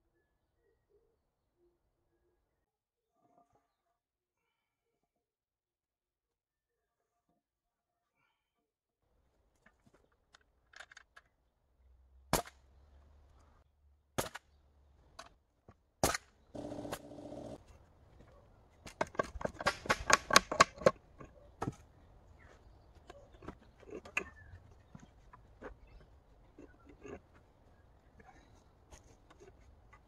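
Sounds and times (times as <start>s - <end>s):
nail gun firing: 16.0s - 17.6s, 19.6s - 20.7s.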